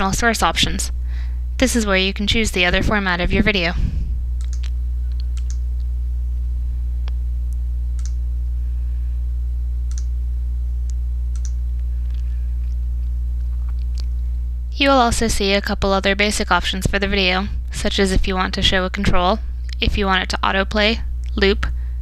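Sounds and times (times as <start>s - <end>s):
low electrical hum: 0.0s - 22.0s
computer mouse clicks: 4.4s - 5.6s, 8.0s - 8.2s, 9.9s - 10.1s, 11.3s - 12.2s.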